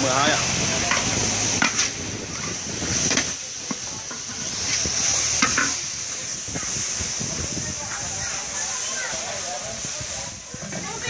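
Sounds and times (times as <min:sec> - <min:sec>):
paste sizzling in oil: 0:00.0 - 0:11.0
metal spatula scraping wok: 0:00.9 - 0:05.9.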